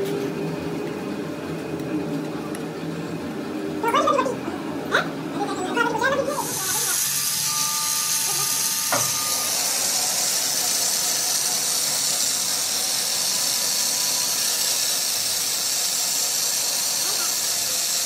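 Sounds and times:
angle grinder grinding steel: 6.2s - 18.0s.

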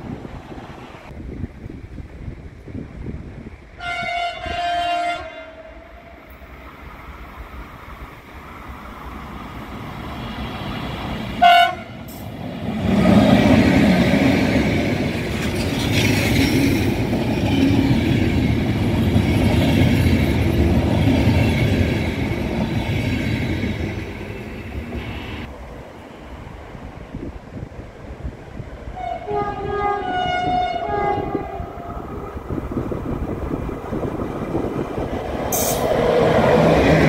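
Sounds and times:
passenger train passing: 0.0s - 37.0s
locomotive horn blast: 3.8s - 6.2s, 11.4s - 12.2s, 29.0s - 32.0s.

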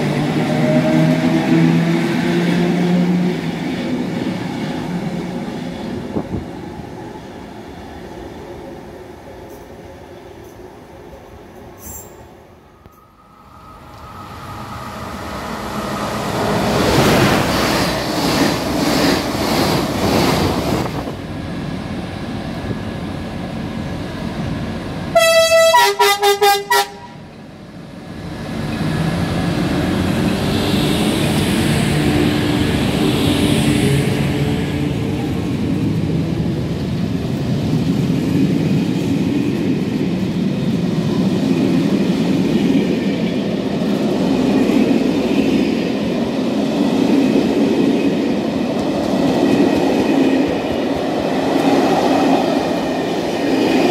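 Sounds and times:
train rolling rumble: 0.0s - 25.7s, 27.3s - 53.9s
train passing: 0.0s - 53.9s
train horn short toots: 25.2s - 27.2s.

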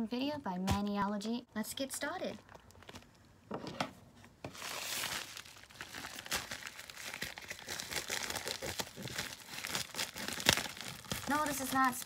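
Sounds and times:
padded envelope crinkling: 4.5s - 12.0s.

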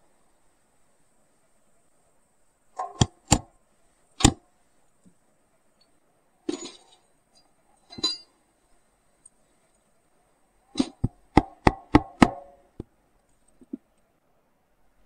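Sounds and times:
rough rattling metal clinks: 6.5s - 8.4s
sharp metallic clinks: 6.5s - 8.4s.

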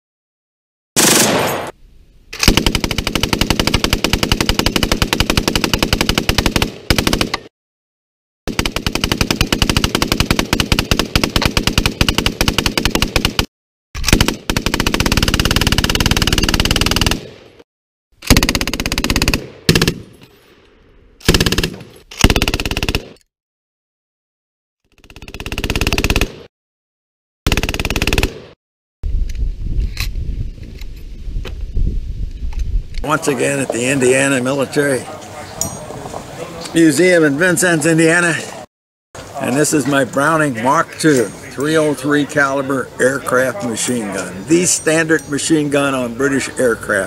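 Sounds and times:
machine gun firing bursts: 1.0s - 1.7s, 2.4s - 7.3s, 8.5s - 17.3s, 18.2s - 20.0s, 21.2s - 23.2s, 25.0s - 26.5s, 27.5s - 28.6s.

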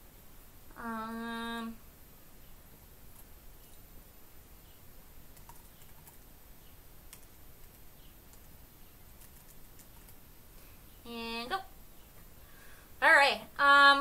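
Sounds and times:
computer keyboard typing: 5.3s - 6.3s, 7.1s - 8.5s, 9.1s - 10.2s.

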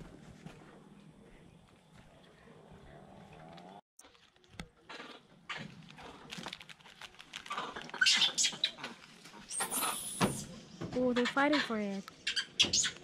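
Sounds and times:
plastic snack packet crackling: 5.6s - 8.6s.

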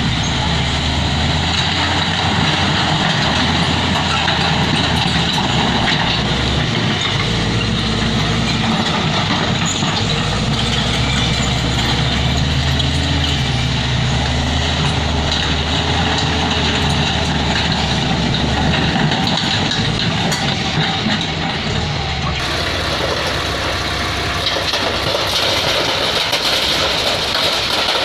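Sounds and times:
bulldozer diesel engine running: 0.0s - 28.0s
dump truck engine: 0.0s - 28.0s.

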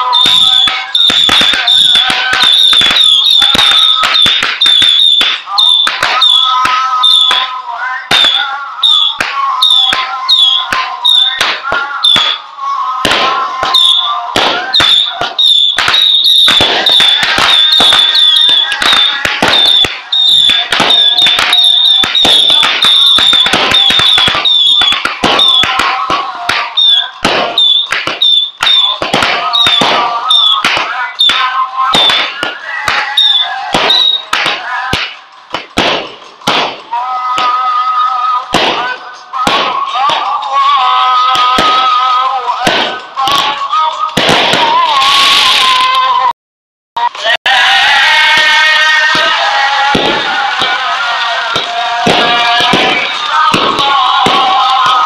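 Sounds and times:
short high firework whistles: 0.0s - 7.5s, 8.1s - 32.4s, 33.0s - 34.4s
firework bangs and pops: 0.0s - 37.8s, 38.4s - 46.2s, 47.0s - 55.0s.

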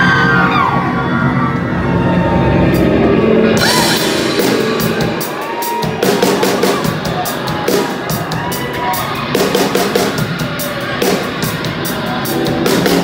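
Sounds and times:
crowd members shouting: 0.0s - 13.0s
live rock band playing: 2.7s - 13.0s
cymbal hits: 2.8s - 8.2s.

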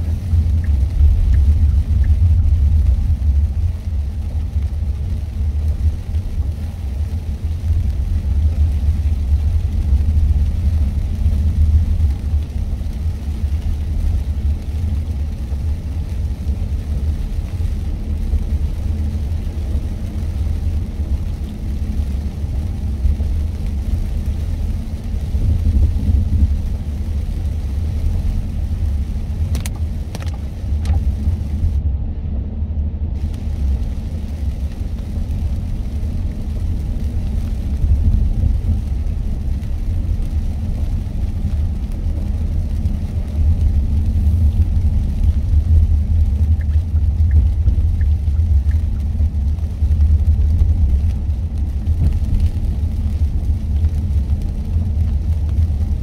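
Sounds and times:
car driving on wet road: 0.0s - 56.0s.

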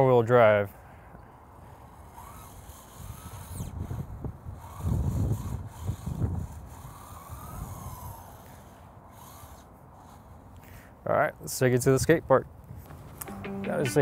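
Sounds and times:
electric motor whining: 2.0s - 10.4s
wind rumbling on microphone: 3.0s - 8.4s.

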